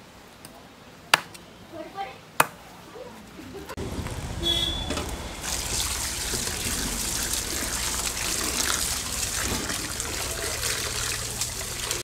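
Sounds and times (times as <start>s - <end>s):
water pouring into metal basin: 3.8s - 12.0s
hands splashing rinsing meat: 5.4s - 12.0s.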